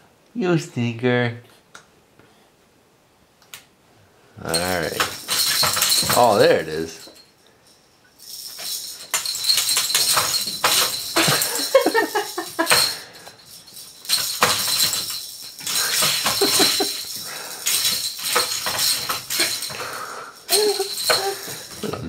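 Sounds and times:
plastic rattle toy clattering: 0:04.5 - 0:07.2, 0:08.2 - 0:19.8, 0:20.4 - 0:21.9.

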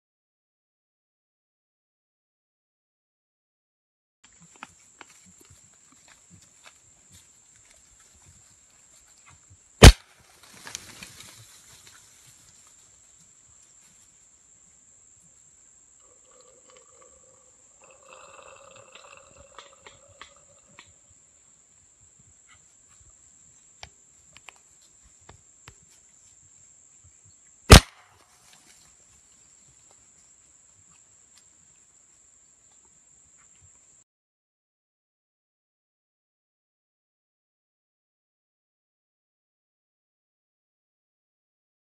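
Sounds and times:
rifle shot crack: 0:09.8 - 0:10.1, 0:27.7 - 0:28.1
animals scrambling through dry leaves: 0:10.1 - 0:13.1.

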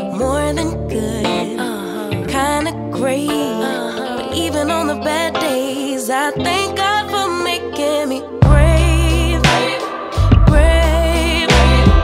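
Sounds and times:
singer holding wavering notes: 0:00.0 - 0:12.0
deep bass: 0:08.4 - 0:09.5, 0:10.2 - 0:12.0.

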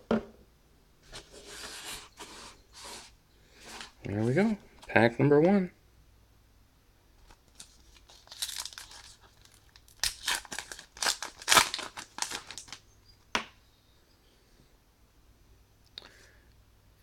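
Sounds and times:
wrapper tearing and crinkling: 0:07.5 - 0:12.8.

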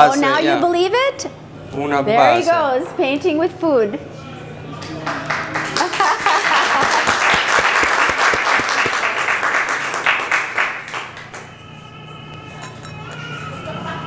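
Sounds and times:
applause: 0:04.8 - 0:11.6.

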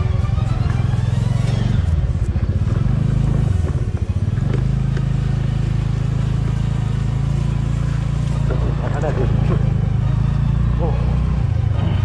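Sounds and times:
scooter engine running: 0:00.0 - 0:12.0.

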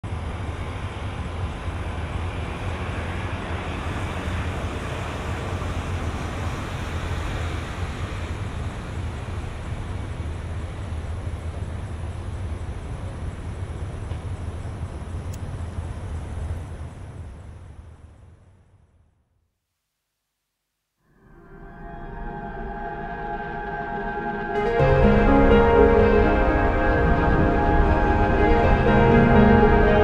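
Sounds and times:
traffic rumble: 0:00.0 - 0:19.0
vehicles passing hiss: 0:00.1 - 0:18.4.

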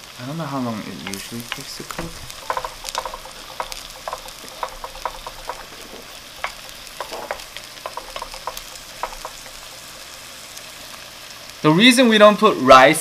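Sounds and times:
eggs sizzling in oil: 0:00.0 - 0:13.0
wooden spatula tapping a pan: 0:00.9 - 0:10.4.

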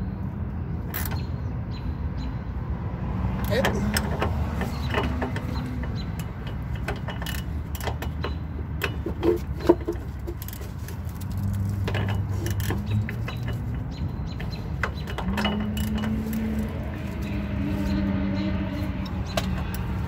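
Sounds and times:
wrench clicking on metal: 0:03.4 - 0:09.1.

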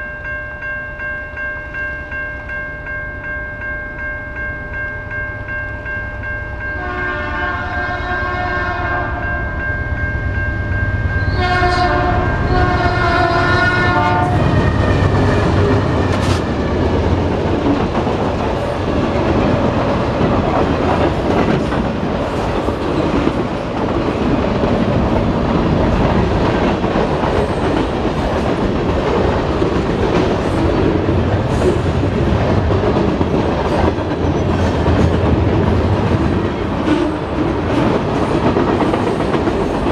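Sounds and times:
crossing bell ringing: 0:00.0 - 0:22.5
train horn blasts: 0:06.8 - 0:09.4, 0:11.2 - 0:15.6
freight cars rumbling: 0:14.2 - 0:39.9
wheels clacking over rail joints: 0:14.4 - 0:39.9.

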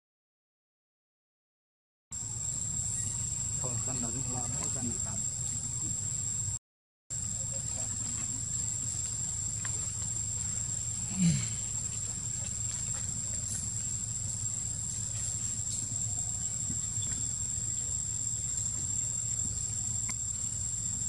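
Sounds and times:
insect chorus: 0:02.2 - 0:21.0
monkey grunt: 0:11.0 - 0:11.9.

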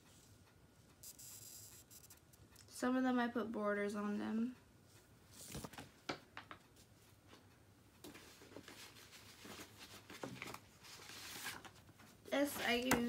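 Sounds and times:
paper rustling: 0:05.4 - 0:05.9, 0:08.1 - 0:11.9.

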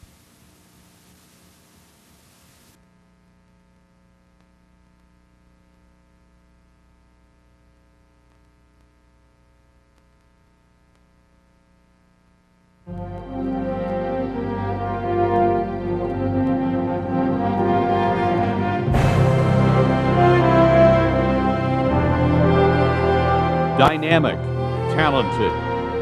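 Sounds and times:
low electrical hum: 0:00.0 - 0:13.6
videotape hiss: 0:00.0 - 0:18.2
faint clicks: 0:08.2 - 0:09.0, 0:09.9 - 0:11.2.

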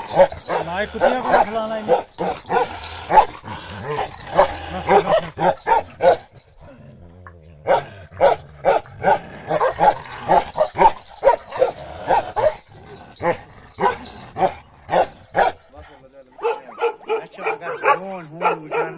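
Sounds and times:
dog barking: 0:00.0 - 0:06.3, 0:07.6 - 0:12.6, 0:13.2 - 0:15.6, 0:16.4 - 0:18.9.

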